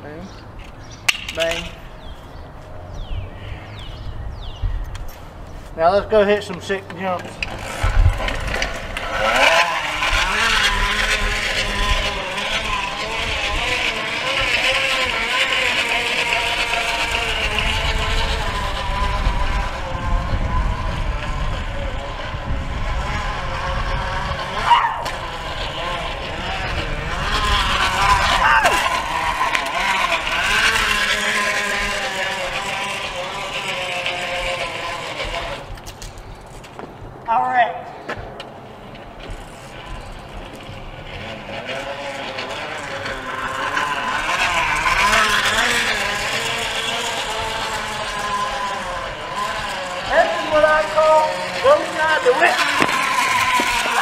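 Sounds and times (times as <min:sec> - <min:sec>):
wind rumble on microphone: 0:01.7 - 0:06.2, 0:07.3 - 0:37.2
engine-like buzzing noisemaker: 0:07.4 - 0:36.2, 0:38.7 - 0:54.0.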